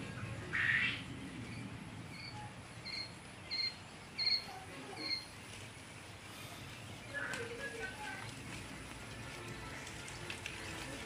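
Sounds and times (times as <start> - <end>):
quail chicks peeping: 0.5 - 5.6.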